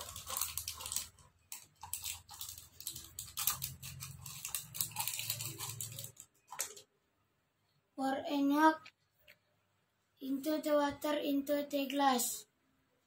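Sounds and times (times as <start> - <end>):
powder pouring into glass: 0.0 - 6.9
sachet rustling and crinkling: 0.0 - 6.9.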